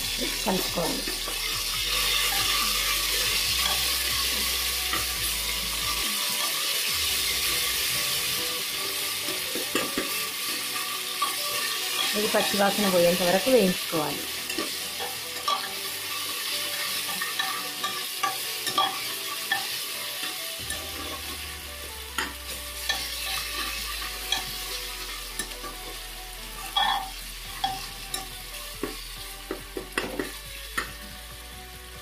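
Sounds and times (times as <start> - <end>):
onions sizzling in oil: 0.0 - 32.0
spoon scraping a pot: 14.4 - 21.2, 26.6 - 28.3.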